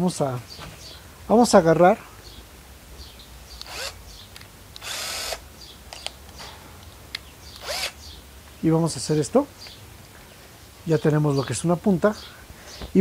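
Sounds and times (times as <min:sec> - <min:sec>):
cordless drill whirring: 0:03.6 - 0:04.0, 0:04.8 - 0:05.4, 0:07.6 - 0:08.0
drill trigger blips: 0:03.6 - 0:04.0, 0:04.7 - 0:05.4, 0:07.5 - 0:08.0.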